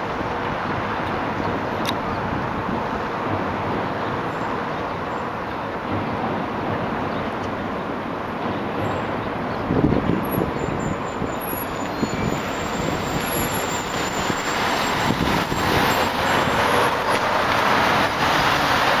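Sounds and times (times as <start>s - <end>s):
passing cars and buses: 0.0s - 19.0s
wind rumbling on microphone: 0.0s - 19.0s.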